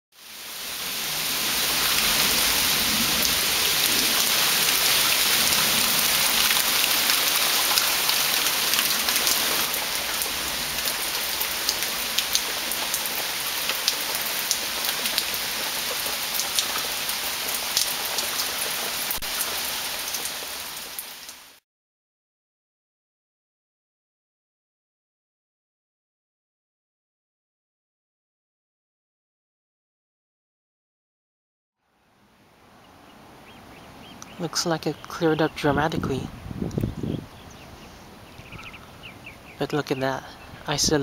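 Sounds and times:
heavy rain on concrete: 0.1s - 21.6s, 33.2s - 41.0s.

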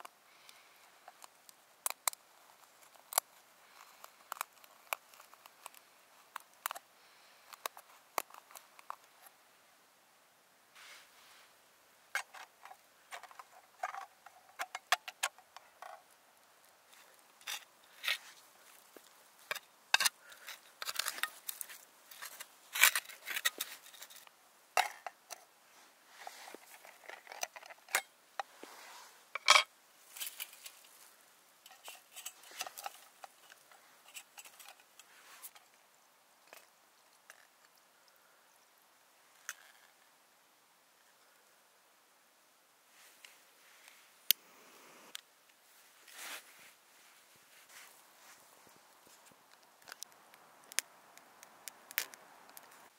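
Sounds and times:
trowel scraping soil and leaves: 16.9s - 24.3s, 26.1s - 27.7s, 28.5s - 29.2s.

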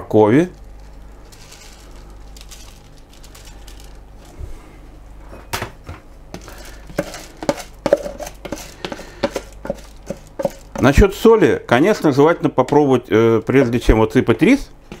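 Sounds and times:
wooden spoon scraping container: 0.7s - 4.4s, 6.4s - 11.0s.

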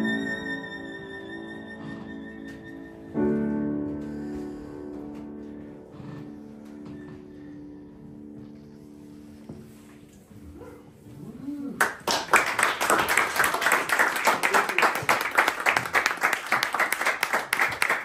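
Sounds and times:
audience applauding: 11.8s - 18.0s.

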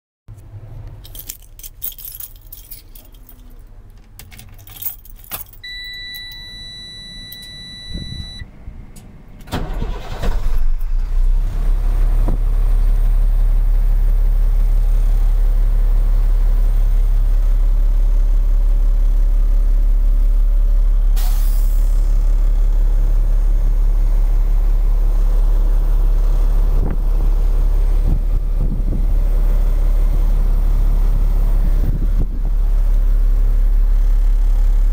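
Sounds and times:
keys jangling: 1.0s - 6.4s
diesel engine starting and idling: 2.9s - 34.9s
electronic warning buzzer: 5.7s - 8.4s.

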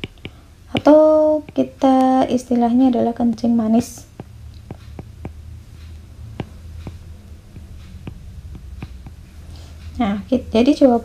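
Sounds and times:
stylus tapping on tablet screen: 0.0s - 2.4s, 3.0s - 9.4s
faint low hum: 0.0s - 11.0s.

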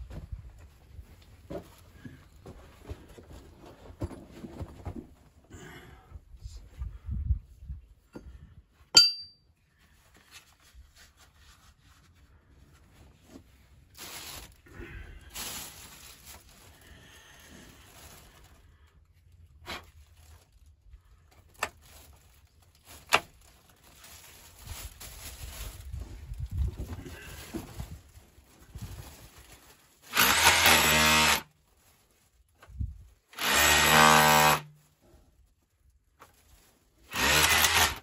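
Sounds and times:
metal chisel clinking on rock: 9.0s - 9.5s
plastic rustling: 10.0s - 30.2s, 31.4s - 33.3s, 34.6s - 37.1s.

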